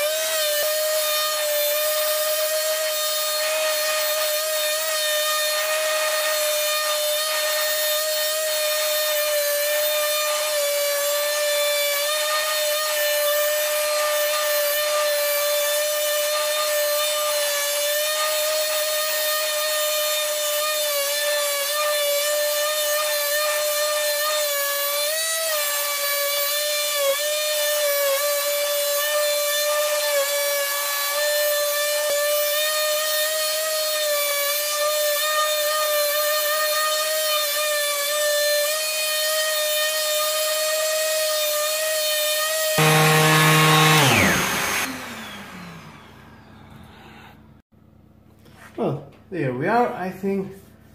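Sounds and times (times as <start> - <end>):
electric sander whining: 38.7 - 47.3.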